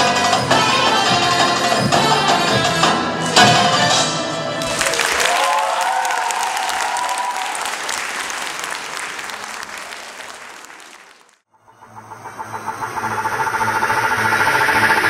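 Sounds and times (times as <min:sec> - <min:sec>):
audience applauding: 0:04.6 - 0:11.4
audience cheering: 0:04.6 - 0:11.4.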